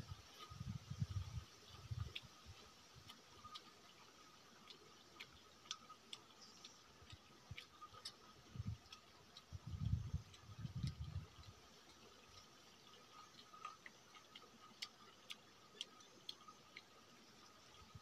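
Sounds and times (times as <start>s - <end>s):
low chewing thuds: 0.0s - 18.0s
soft eating clicks and smacks: 0.1s - 18.0s.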